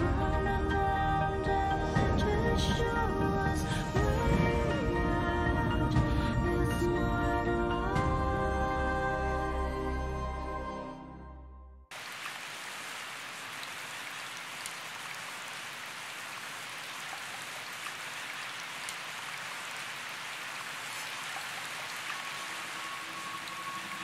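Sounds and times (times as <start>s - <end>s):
steady rain hiss: 11.9s - 24.0s
faint rain drop ticks: 16.8s - 24.0s.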